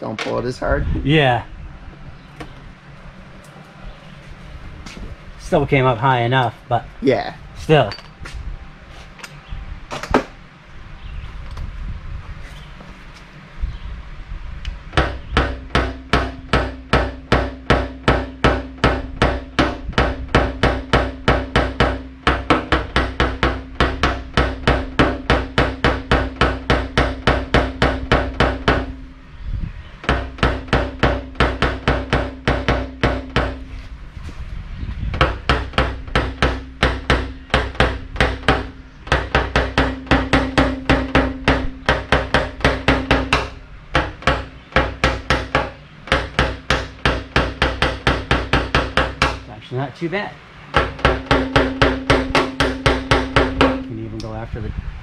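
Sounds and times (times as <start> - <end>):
hammer tapping metal punch: 15.0 - 29.0, 30.0 - 33.6, 35.2 - 49.5, 50.7 - 53.9.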